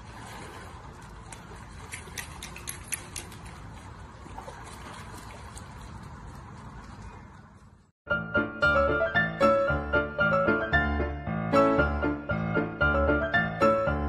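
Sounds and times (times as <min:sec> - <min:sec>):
small sharp splashes: 0:00.0 - 0:07.6
pool water splashing: 0:00.0 - 0:07.9.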